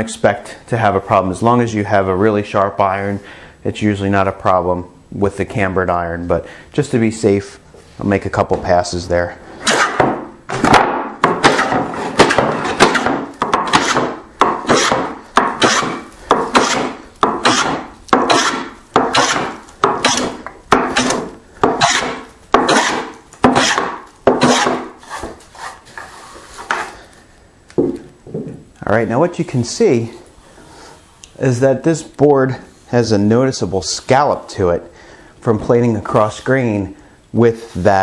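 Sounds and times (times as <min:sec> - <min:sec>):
hand plane rasping across wood: 0:11.4 - 0:26.9.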